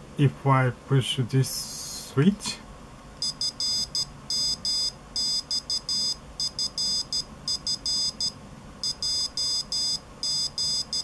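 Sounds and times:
buzzer beeping morse code: 0:03.2 - 0:11.0.

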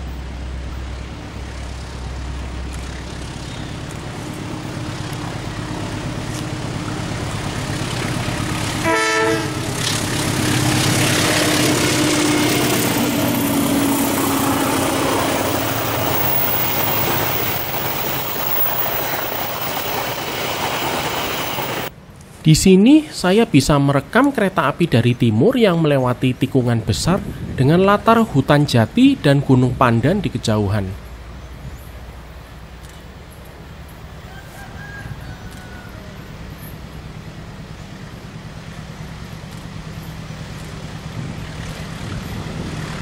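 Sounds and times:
train coaches rolling: 0:00.0 - 0:22.4, 0:27.9 - 0:43.0
diesel locomotive engine: 0:00.0 - 0:43.0
train horn blast: 0:08.4 - 0:15.8.

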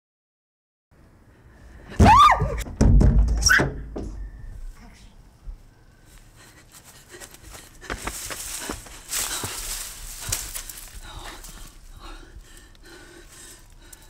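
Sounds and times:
loud rising and falling cry: 0:01.9 - 0:02.6
heavy low thud: 0:02.0 - 0:04.6
faint ticks and rustles: 0:06.1 - 0:14.0.

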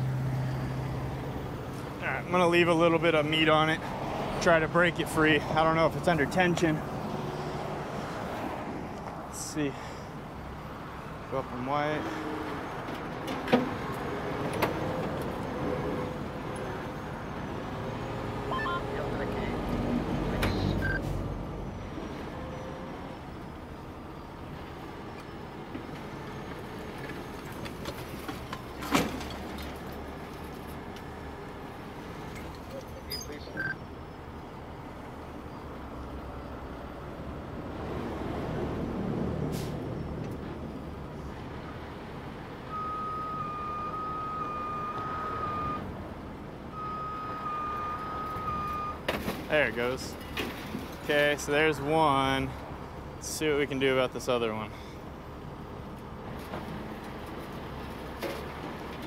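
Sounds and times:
truck warning alarm tone: 0:15.4 - 0:27.4, 0:42.6 - 0:46.0, 0:46.7 - 0:49.1.

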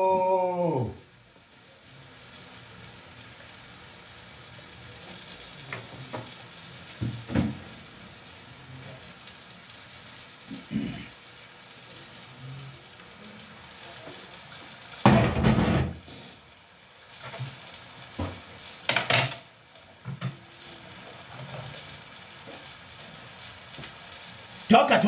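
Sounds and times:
food sizzling in frying pan: 0:00.0 - 0:25.0
metal cookware clattering: 0:18.9 - 0:19.5.

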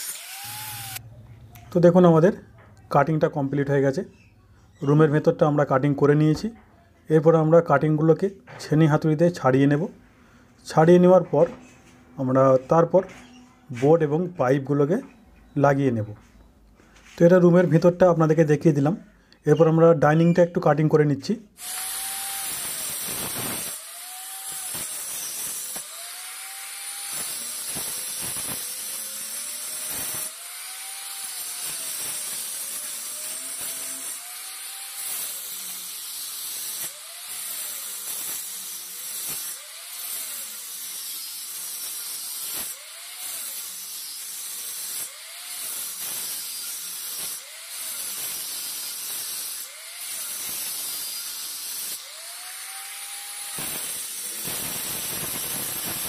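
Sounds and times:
angle grinder cutting brick: 0:00.0 - 0:01.0, 0:21.6 - 0:56.0.

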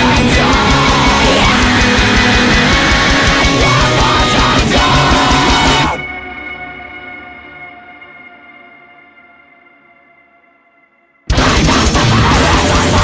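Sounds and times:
heavy rock band playing: 0:00.0 - 0:07.5, 0:11.3 - 0:13.0.

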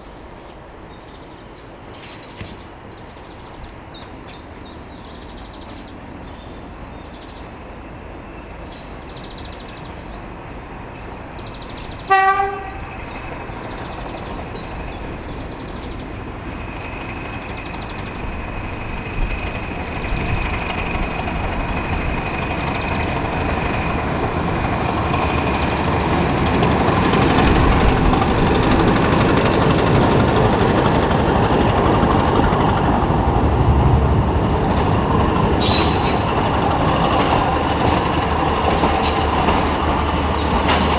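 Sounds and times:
diesel train engine approaching: 0:00.0 - 0:40.9
locomotive horn blast: 0:12.1 - 0:12.9.

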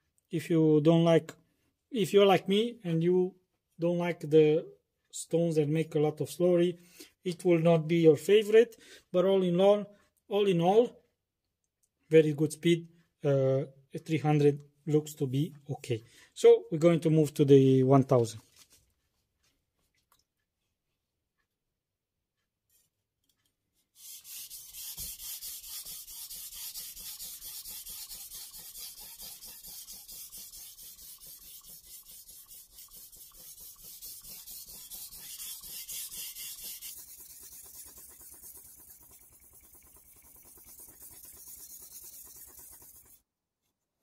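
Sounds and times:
knife scraping on whetstone: 0:24.0 - 0:43.2.

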